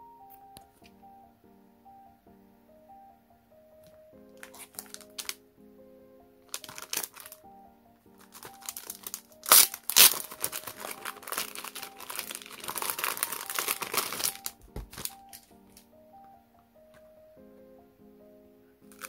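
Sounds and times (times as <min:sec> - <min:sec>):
soft piano music: 0:00.0 - 0:19.0
packaging crinkling: 0:04.4 - 0:05.4, 0:06.5 - 0:07.4, 0:08.2 - 0:15.8.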